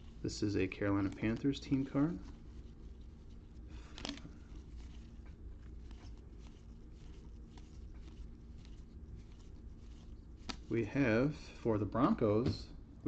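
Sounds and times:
trading cards flipped by hand: 0:03.7 - 0:10.7.

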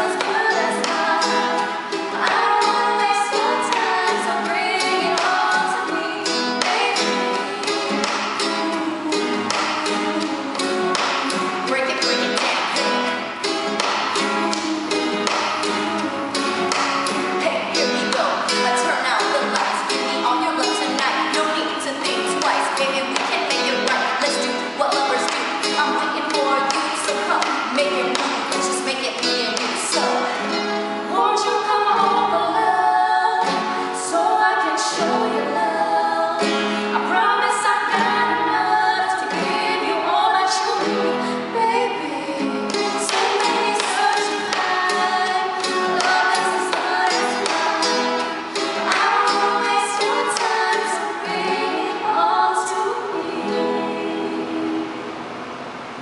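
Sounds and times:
women singing: 0:00.0 - 0:55.2
strummed nylon-string guitar: 0:00.0 - 0:56.0.

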